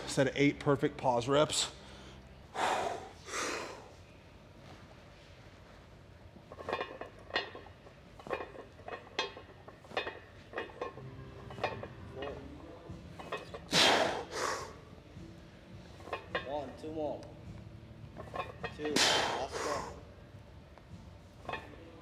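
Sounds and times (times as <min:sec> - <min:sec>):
weight plates clinking: 0:06.5 - 0:13.8, 0:18.1 - 0:19.4, 0:21.4 - 0:22.0.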